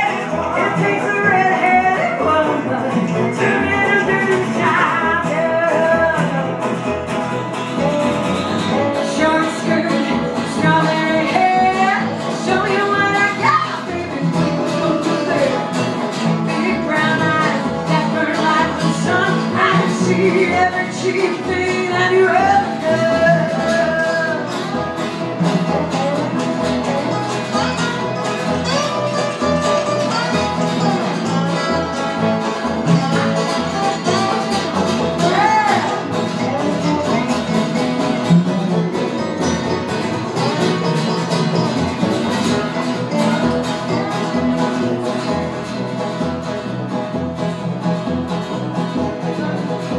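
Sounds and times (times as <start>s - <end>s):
woman singing: 0.0s - 6.8s, 8.6s - 24.8s, 35.2s - 37.7s, 43.0s - 45.0s
banjo: 0.0s - 49.9s
strummed acoustic guitar: 0.0s - 49.9s
upright bass: 0.0s - 49.9s.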